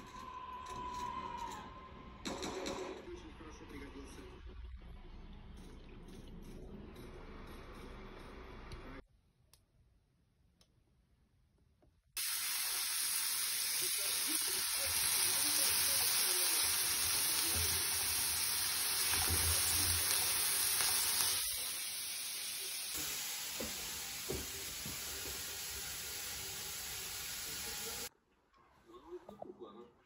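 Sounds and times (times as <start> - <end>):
mushrooms sizzling in frying pan: 12.2 - 28.1.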